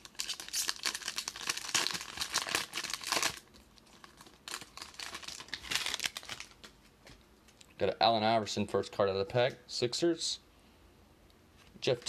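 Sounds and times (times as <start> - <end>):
foil wrapper crinkling and tearing: 0.0 - 6.7.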